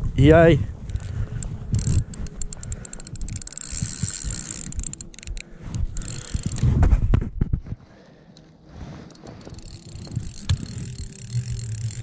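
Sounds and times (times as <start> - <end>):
fishing reel clicking: 0.9 - 6.7, 9.0 - 12.0
microphone handling noise: 5.6 - 7.8.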